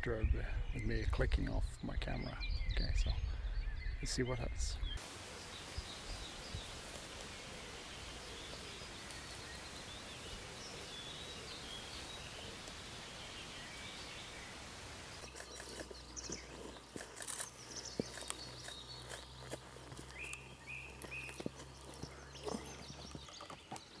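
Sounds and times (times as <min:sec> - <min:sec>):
faint birdsong: 0:00.0 - 0:24.0
background hiss: 0:04.8 - 0:16.4.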